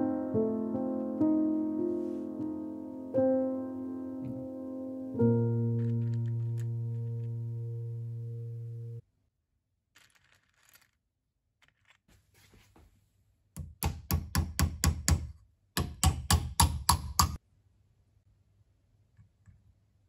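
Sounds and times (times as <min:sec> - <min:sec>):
nails rattling in plastic box: 0:10.0 - 0:11.0.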